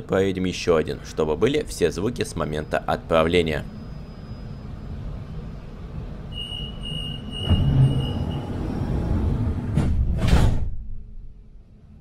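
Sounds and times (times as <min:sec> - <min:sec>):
train rumbling away: 0:02.7 - 0:10.2
train doors shutting: 0:04.2 - 0:11.0
door warning beeps: 0:06.3 - 0:08.8.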